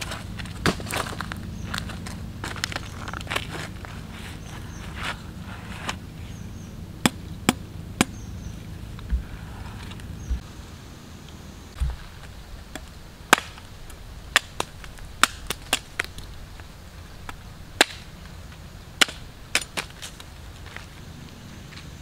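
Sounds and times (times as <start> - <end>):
blade chopping fruit: 7.0 - 8.2
dull low thump: 9.0 - 10.5, 11.8 - 12.1.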